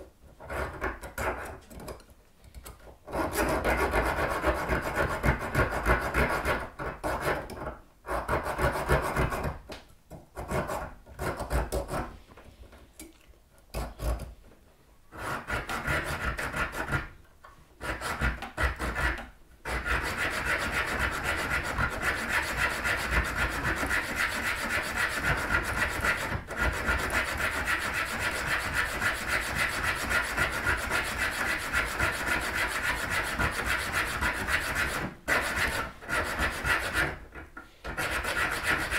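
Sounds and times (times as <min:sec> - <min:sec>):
hacksaw cutting metal: 0:17.8 - 0:37.2, 0:37.9 - 0:38.9.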